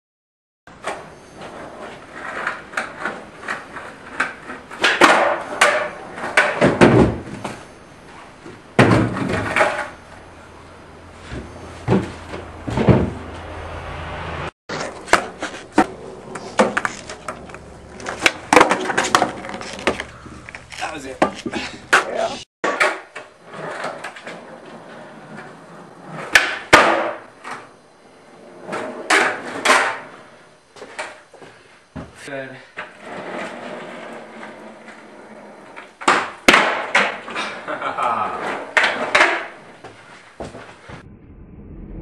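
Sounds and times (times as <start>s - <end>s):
skateboard wheels rolling: 0.7s - 42.0s
skateboard deck clacking: 1.8s - 7.2s, 14.7s - 27.7s, 35.8s - 37.4s
skateboard tail popping: 2.2s - 7.6s, 14.7s - 24.6s, 25.3s - 27.7s, 36.0s - 37.4s
skateboard wheels landing: 2.2s - 7.7s, 8.5s - 10.0s, 14.7s - 24.6s, 25.2s - 27.7s, 28.7s - 30.2s, 35.9s - 37.6s.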